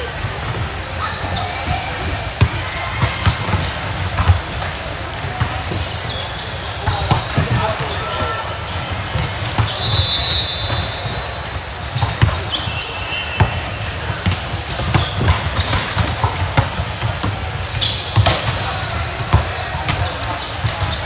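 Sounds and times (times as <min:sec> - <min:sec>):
murmur of voices in a hall: 0:00.0 - 0:21.0
volleyballs hit and bouncing: 0:00.0 - 0:21.0.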